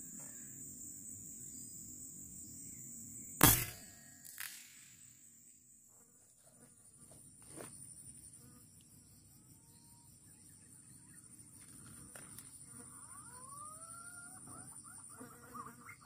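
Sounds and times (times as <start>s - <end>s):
high-pitched insect drone: 6.8s - 16.0s.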